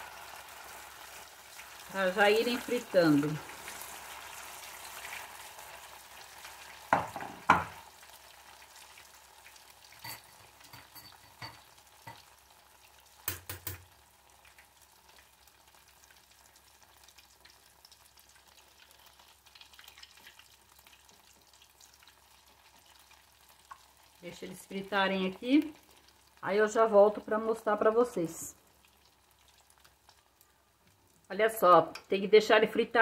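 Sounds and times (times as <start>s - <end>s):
food sizzling in hot oil: 0.0s - 33.0s
metal spoon clinking on pot: 10.0s - 12.3s.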